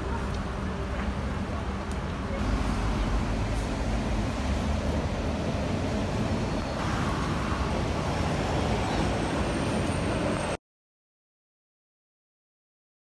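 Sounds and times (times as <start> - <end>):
road traffic noise: 0.0 - 10.6.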